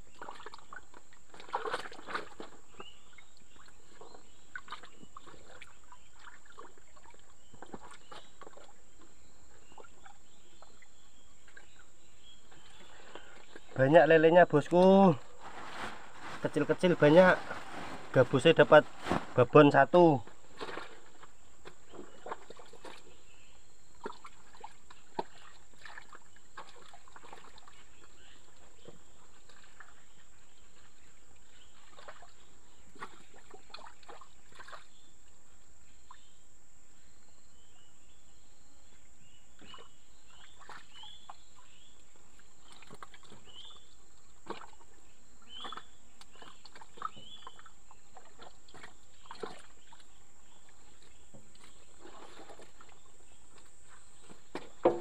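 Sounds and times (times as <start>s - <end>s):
faint splashes: 0.0s - 36.4s, 39.6s - 55.0s
rustling: 14.8s - 21.4s.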